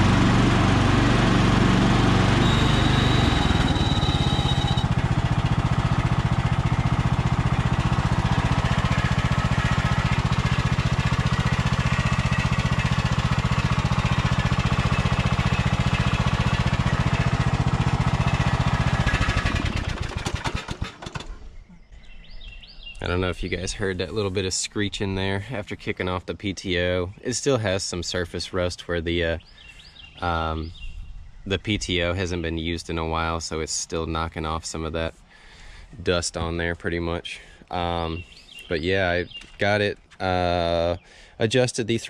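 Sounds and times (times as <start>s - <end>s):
lawn tractor engine running: 0.0s - 21.4s
engine shutting off: 0.0s - 21.8s
clutch high screech: 2.1s - 5.0s.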